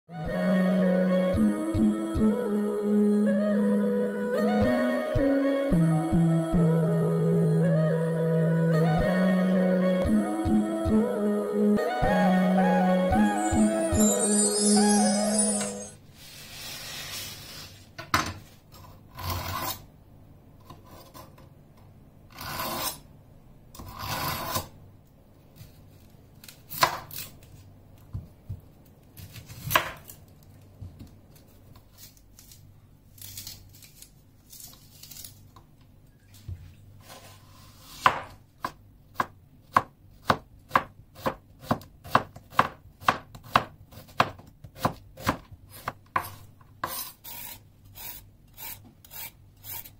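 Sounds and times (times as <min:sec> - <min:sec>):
knife scraping strokes: 0:46.2 - 0:49.9.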